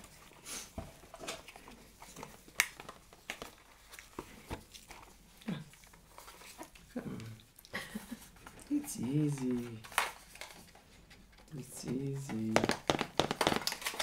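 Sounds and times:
paper and plastic rustling: 0.0 - 14.0
light clicks of packaging: 8.4 - 11.6.

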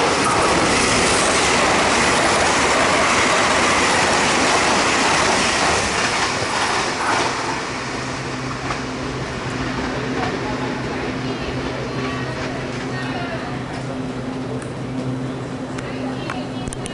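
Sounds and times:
train wheel and rail noise: 0.0 - 16.9.

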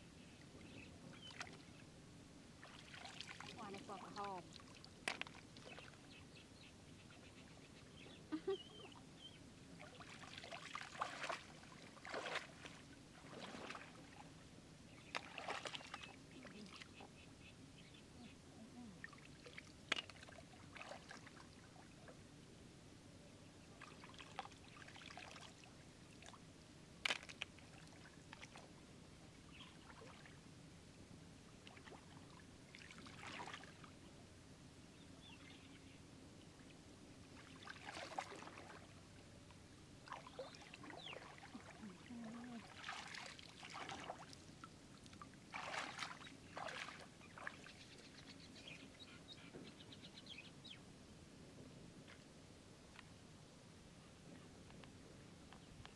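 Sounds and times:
muddy water sloshing: 2.6 - 6.1, 9.8 - 14.3, 15.0 - 17.1, 18.8 - 21.9, 23.8 - 26.4, 27.0 - 28.7, 31.6 - 33.9, 37.3 - 39.0, 40.0 - 47.8.

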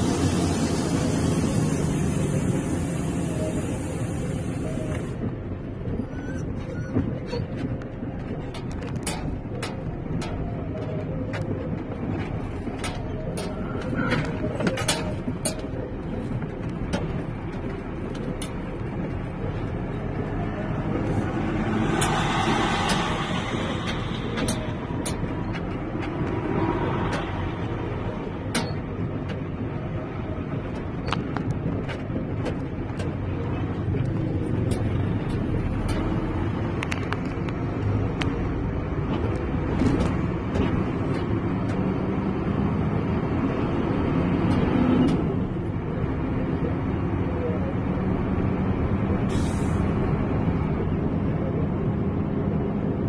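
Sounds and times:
road and engine rumble: 0.0 - 53.0
rushing swell: 20.3 - 28.3.

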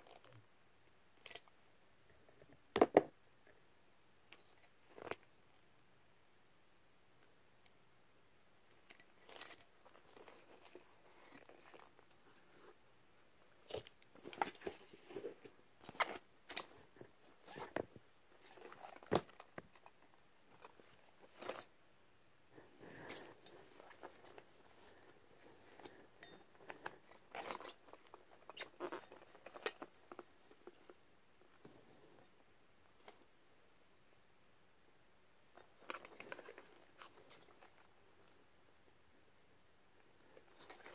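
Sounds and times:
rubber masks rustling and creaking: 4.3 - 5.7, 8.7 - 21.8, 22.5 - 33.4, 35.5 - 39.0, 39.9 - 40.9.

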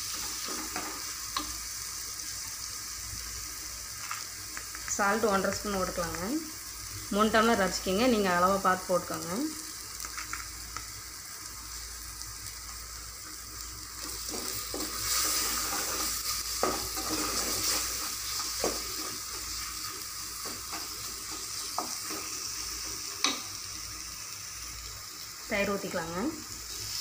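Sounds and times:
food sizzling in hot oil: 0.0 - 27.0
spatula scraping through food: 14.1 - 19.4.

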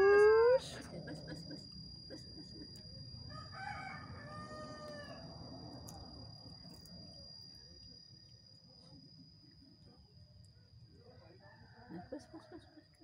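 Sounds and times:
distant rooster crowing: 3.3 - 5.4.

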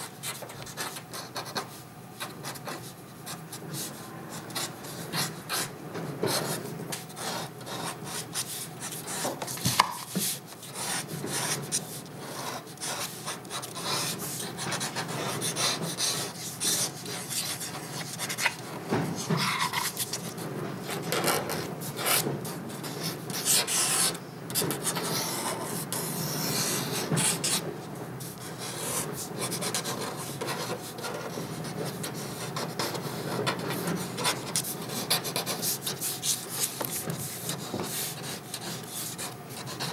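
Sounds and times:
pen nib scratching paper: 7.2 - 18.6.

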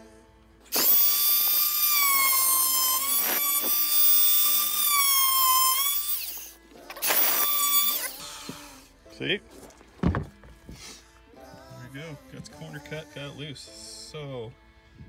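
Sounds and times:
oscillating multi-tool buzzing whine: 0.7 - 8.3.

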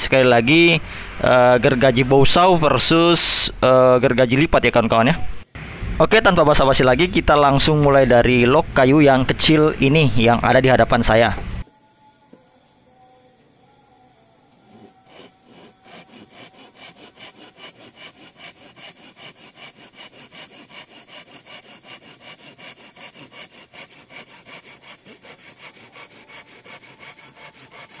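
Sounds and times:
saw rasping through branch: 14.7 - 28.0.

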